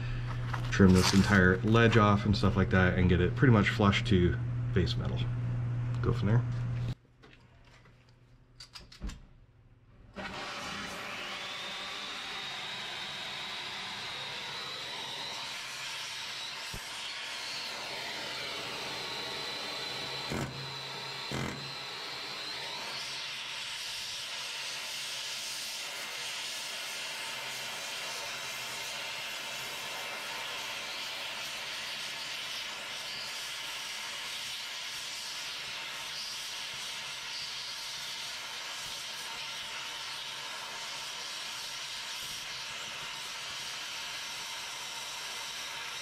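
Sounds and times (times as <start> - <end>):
cutting torch hissing: 10.2 - 46.0.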